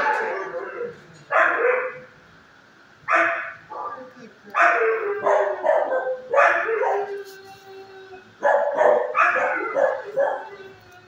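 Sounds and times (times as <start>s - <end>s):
dogs barking in echoing kennels: 0.0s - 2.2s, 3.0s - 7.2s, 8.2s - 11.0s
dog howling: 4.6s - 11.0s.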